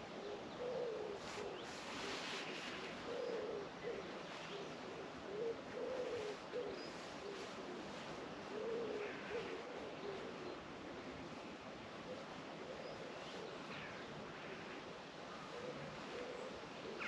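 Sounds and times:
pigeon cooing: 0:00.1 - 0:02.2, 0:03.0 - 0:10.6, 0:15.4 - 0:17.0.

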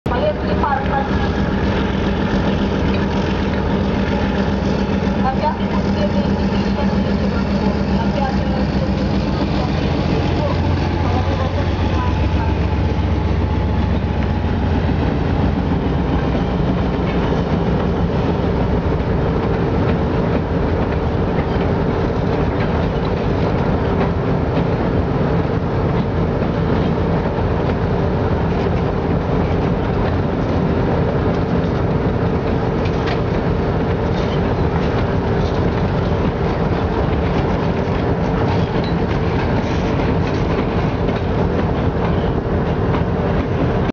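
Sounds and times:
deep low rumble: 0:00.1 - 0:27.0
train wheels clicking over rail joints: 0:00.8 - 0:24.8, 0:25.8 - 0:43.6.

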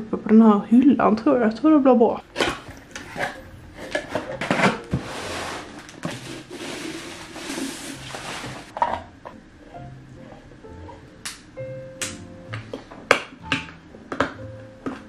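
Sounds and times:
bubble wrap crinkling: 0:02.6 - 0:08.8.

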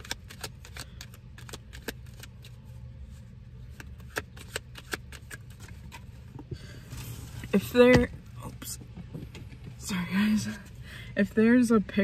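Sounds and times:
cards being shuffled: 0:00.0 - 0:06.2.

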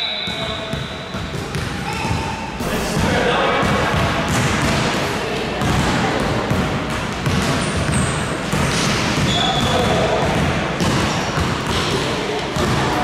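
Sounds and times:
high shoe squeaks: 0:00.0 - 0:02.6, 0:07.6 - 0:10.0
basketball bouncing on court: 0:00.2 - 0:02.3, 0:03.0 - 0:13.0.

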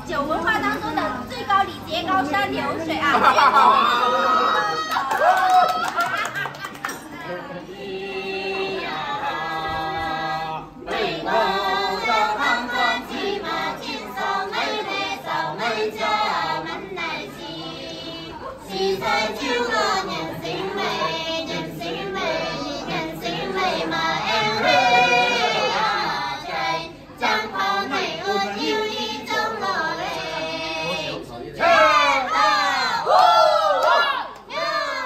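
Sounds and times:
women singing in chorus: 0:07.1 - 0:35.0.

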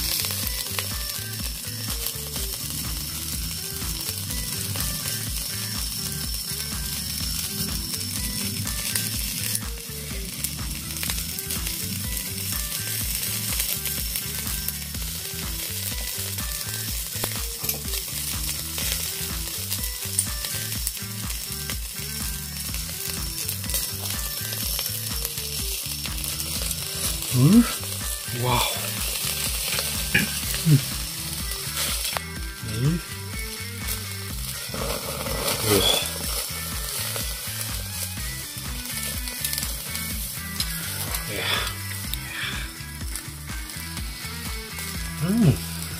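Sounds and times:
meat sizzling on a grill: 0:00.0 - 0:45.9.

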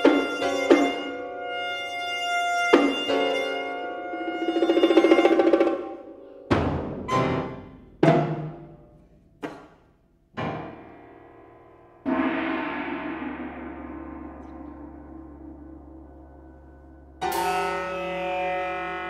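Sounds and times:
struck notes ringing out: 0:11.9 - 0:19.0.

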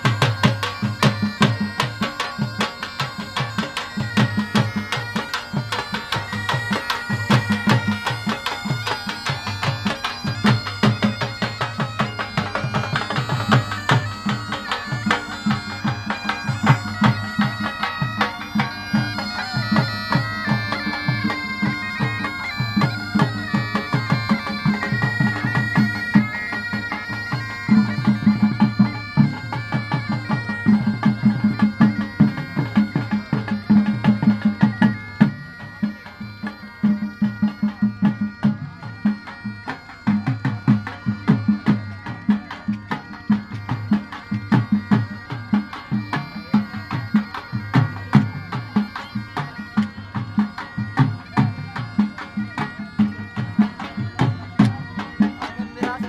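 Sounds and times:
drum beating fast rhythm: 0:00.0 - 0:35.8, 0:36.8 - 0:56.0
bagpipes playing folk tune: 0:00.0 - 0:56.0.

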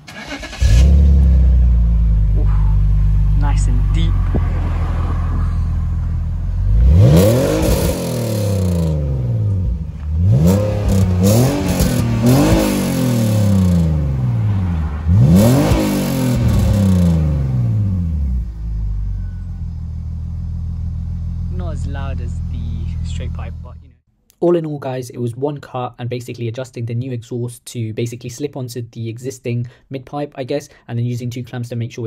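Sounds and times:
car engine idling and revving: 0:00.0 - 0:23.8.

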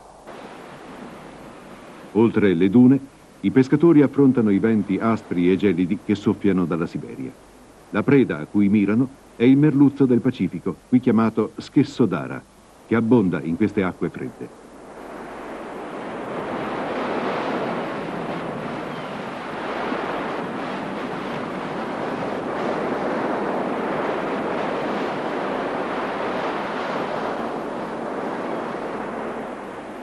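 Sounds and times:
surf breaking on a beach: 0:00.0 - 0:07.3, 0:13.8 - 0:30.0
wind: 0:00.0 - 0:30.0.

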